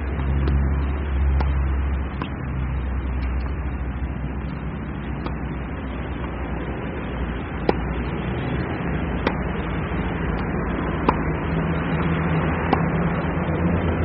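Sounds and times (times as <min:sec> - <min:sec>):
steady background rumble: 0:00.0 - 0:14.0
tennis ball hit by racket: 0:01.4 - 0:02.4, 0:05.2 - 0:05.4, 0:07.6 - 0:08.0, 0:09.1 - 0:09.6, 0:10.3 - 0:13.1.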